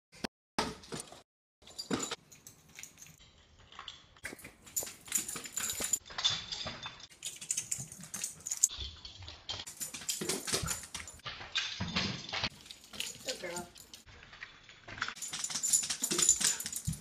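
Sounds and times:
dog claws clicking on wooden floor: 0:07.1 - 0:14.0.

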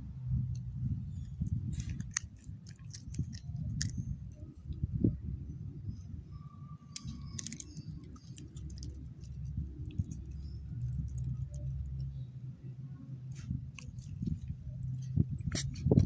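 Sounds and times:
dog chewing bone: 0:01.8 - 0:04.0, 0:07.0 - 0:12.0.

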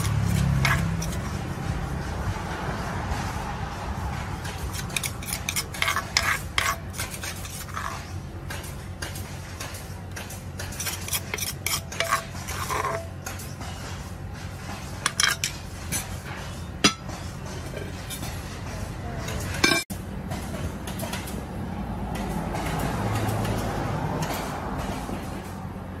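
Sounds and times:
spoon scraping clay mortar: 0:00.0 - 0:01.6, 0:04.4 - 0:19.9.

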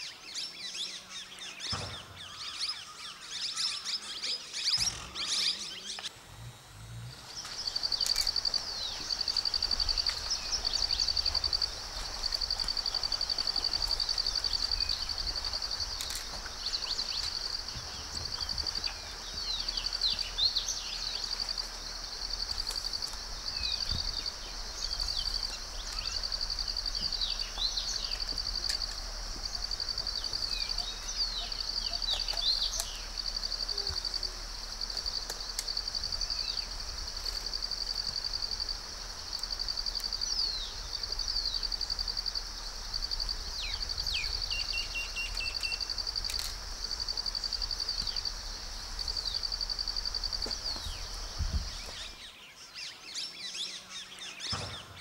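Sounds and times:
insects trilling: 0:00.0 - 0:54.9.

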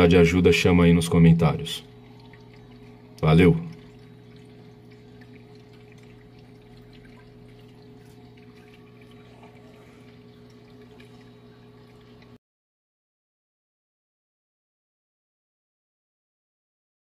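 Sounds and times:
aquarium pump humming: 0:00.0 - 0:12.4
water trickling and dripping: 0:00.8 - 0:12.4.

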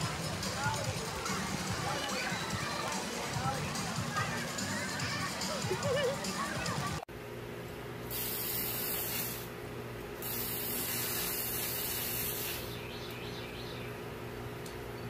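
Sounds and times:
hose nozzle spraying water: 0:08.1 - 0:09.5, 0:10.2 - 0:12.8.

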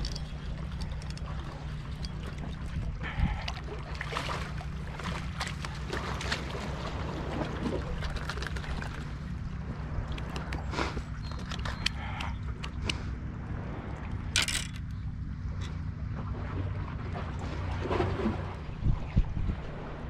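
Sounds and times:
water splashing against rocks: 0:00.0 - 0:12.9
low rumble: 0:00.0 - 0:20.0.

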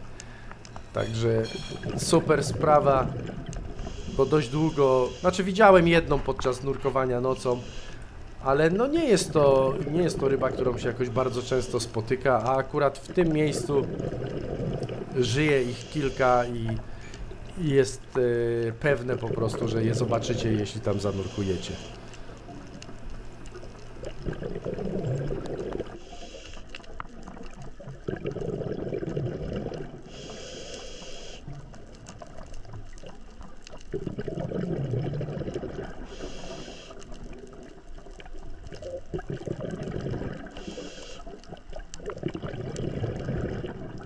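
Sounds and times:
exhaled bubbles burbling: 0:01.0 - 0:04.7, 0:08.4 - 0:21.2, 0:22.2 - 0:26.0, 0:26.9 - 0:30.2, 0:31.5 - 0:36.4, 0:37.1 - 0:44.0
regulator inhale hiss: 0:03.6 - 0:05.5, 0:07.5 - 0:08.3, 0:15.7 - 0:17.4, 0:21.0 - 0:22.4, 0:25.9 - 0:26.8, 0:30.0 - 0:31.5, 0:36.0 - 0:37.2, 0:40.5 - 0:41.5.

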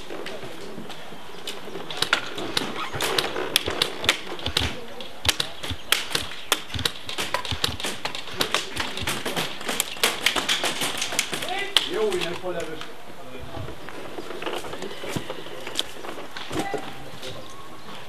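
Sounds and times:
airsoft guns firing: 0:01.9 - 0:12.3
pellets striking: 0:01.9 - 0:12.3.

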